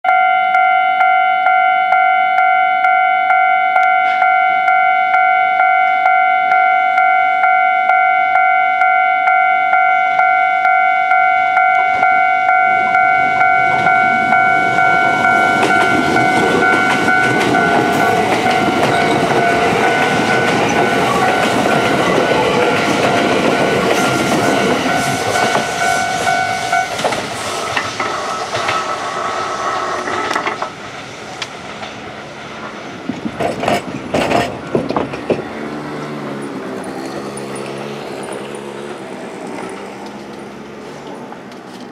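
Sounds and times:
level crossing bell clanging: 0:00.0 - 0:27.1
approaching electric train: 0:00.1 - 0:41.9.

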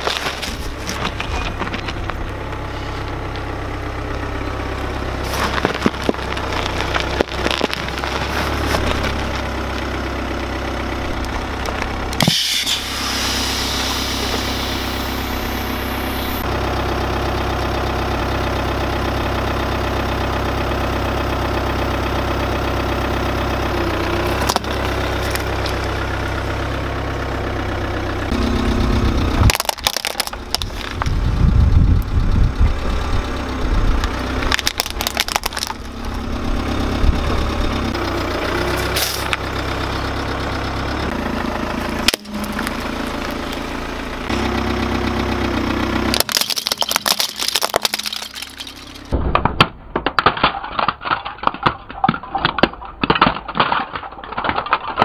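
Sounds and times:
tyre crushing plastic toys: 0:00.0 - 0:02.3, 0:05.2 - 0:10.0, 0:24.2 - 0:26.0, 0:29.4 - 0:31.2, 0:34.4 - 0:36.0, 0:38.7 - 0:39.5, 0:46.0 - 0:55.0
car engine idling: 0:00.0 - 0:49.2.

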